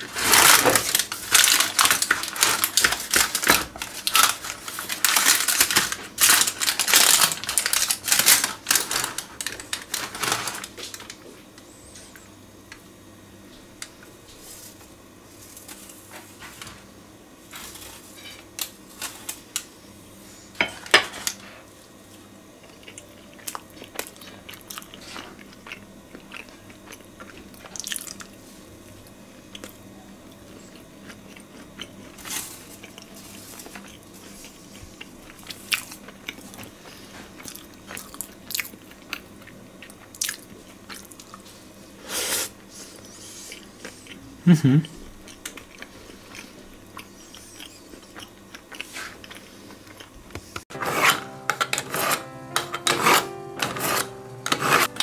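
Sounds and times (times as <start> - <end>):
crunching crisp food: 0.0 - 11.3, 22.6 - 41.6.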